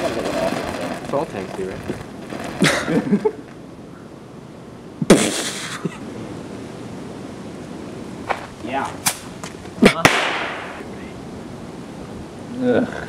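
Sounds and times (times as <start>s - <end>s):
firework bang: 5.0s - 5.8s, 9.0s - 10.9s
brief hiss: 5.1s - 5.8s, 9.0s - 9.3s.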